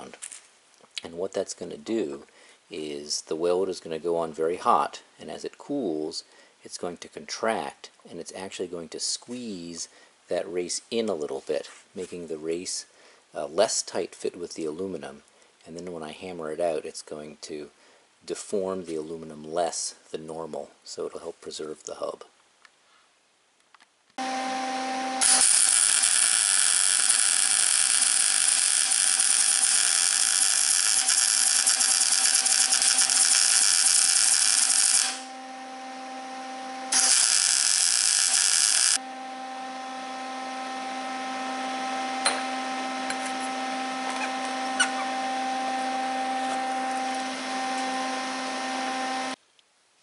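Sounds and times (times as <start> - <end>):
welding arc hiss: 25.2 - 35.3, 36.9 - 39.0.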